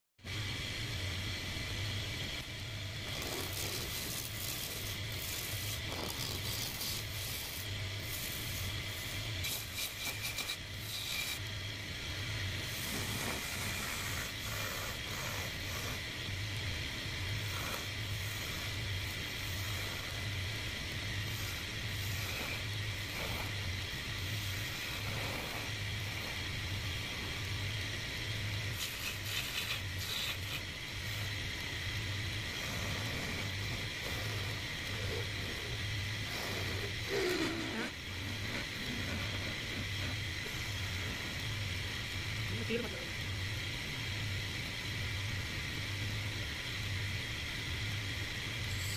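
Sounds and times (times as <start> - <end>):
wood lathe humming: 2.0 - 41.4
chisel scraping spinning wood: 2.7 - 27.4, 28.4 - 41.2.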